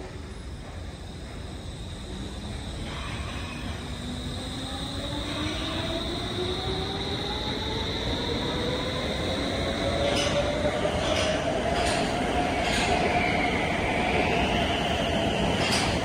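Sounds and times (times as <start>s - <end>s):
metro train motors whining: 0.0s - 16.0s
train wheel clacks: 9.9s - 13.1s, 15.5s - 16.0s.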